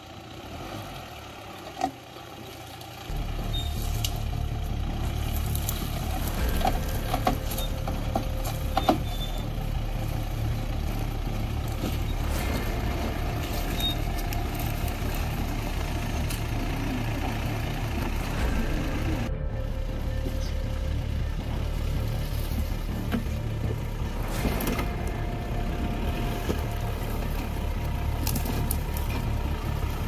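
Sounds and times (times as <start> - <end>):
car engine running: 0.0 - 30.0
sharp knocks and rattles: 3.1 - 19.3.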